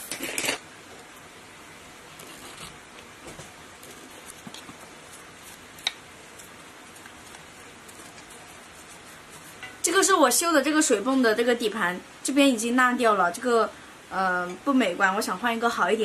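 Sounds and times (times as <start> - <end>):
handling rustles and ticks: 2.2 - 9.9.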